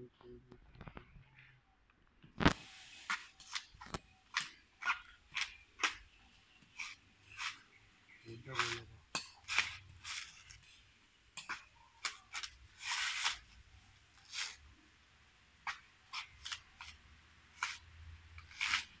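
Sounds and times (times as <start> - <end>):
coconut husk cracking and ripping: 15.7 - 19.0.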